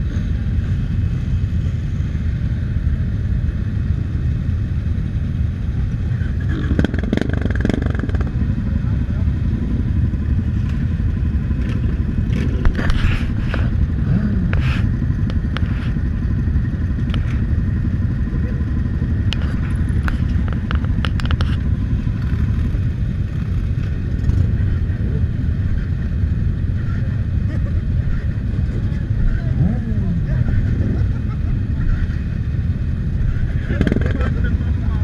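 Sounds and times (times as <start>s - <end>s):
motorcycle engines idling: 0.0s - 35.0s
sharp clicks and clatter: 6.5s - 8.4s, 11.5s - 13.9s, 17.0s - 17.5s, 19.2s - 24.8s, 33.5s - 34.4s.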